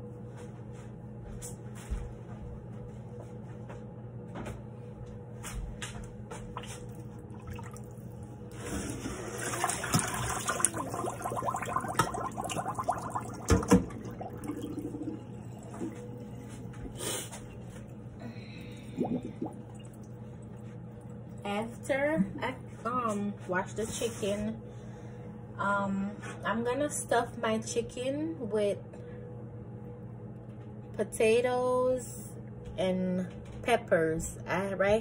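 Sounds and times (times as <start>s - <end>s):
steady low hum: 0.0s - 35.0s
water pouring into metal sink: 7.3s - 16.9s.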